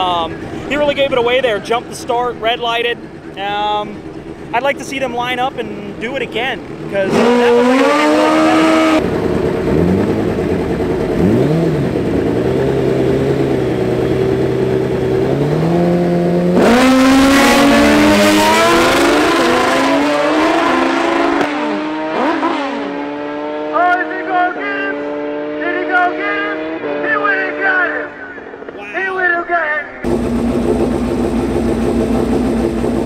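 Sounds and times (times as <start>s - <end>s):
drag racing engines idling: 0.0s - 15.5s, 30.0s - 33.0s
engine revving: 0.0s - 28.4s, 30.0s - 33.0s
engine throttle blips: 0.0s - 28.8s, 30.0s - 33.0s.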